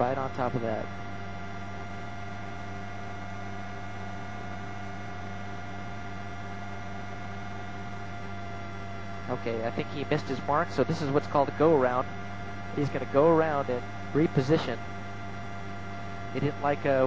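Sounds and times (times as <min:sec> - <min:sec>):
helicopter cabin drone: 0:00.0 - 0:17.0.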